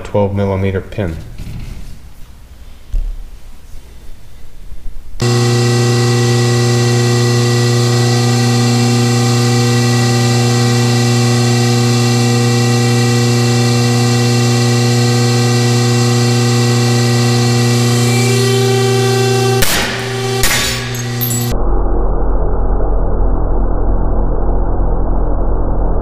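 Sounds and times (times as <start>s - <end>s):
motor humming: 5.2s - 21.6s.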